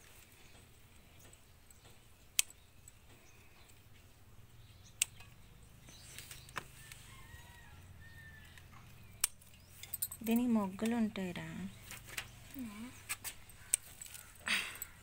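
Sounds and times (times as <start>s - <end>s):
scissors snipping stems: 8.5s - 9.4s, 10.0s - 15.0s.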